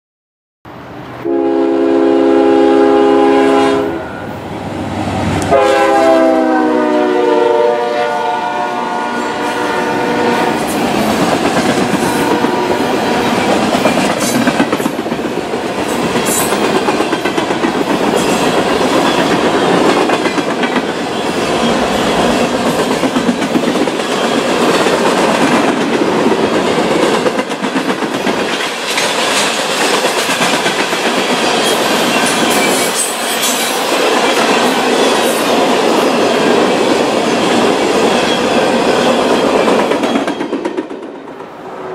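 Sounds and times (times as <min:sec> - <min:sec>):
train horn blasts: 0:01.2 - 0:04.4, 0:05.4 - 0:10.7, 0:12.0 - 0:13.3
freight cars rolling clickety-clack: 0:10.4 - 0:41.6.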